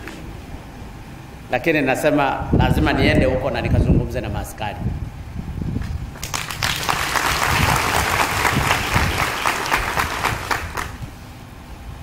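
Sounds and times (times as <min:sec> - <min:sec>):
large audience applauding: 0:06.2 - 0:11.1.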